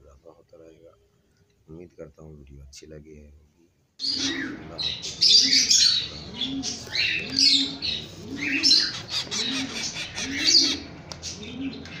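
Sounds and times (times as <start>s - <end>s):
parakeet chicks harsh calls: 4.0s - 12.0s.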